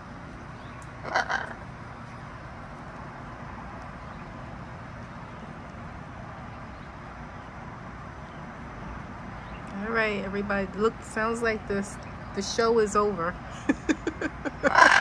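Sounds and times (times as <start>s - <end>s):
outdoor background hum: 0.0s - 15.0s
macaw squawking: 1.0s - 1.6s.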